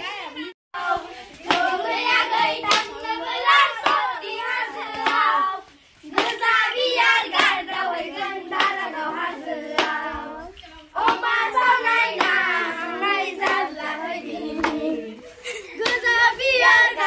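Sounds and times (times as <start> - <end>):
children singing: 0.0 - 17.0
hand clap: 1.5 - 1.7, 2.6 - 3.0, 3.8 - 4.1, 4.9 - 5.4, 6.1 - 6.6, 7.3 - 7.6, 8.5 - 8.8, 9.8 - 10.1, 12.1 - 12.5, 13.4 - 13.7, 14.6 - 14.9.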